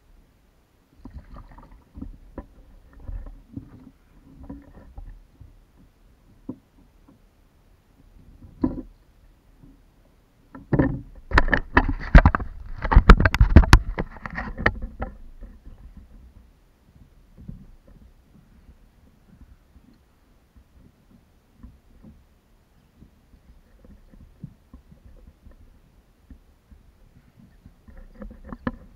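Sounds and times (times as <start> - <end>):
faint taps and rustles: 1.0 - 7.3, 7.9 - 28.9.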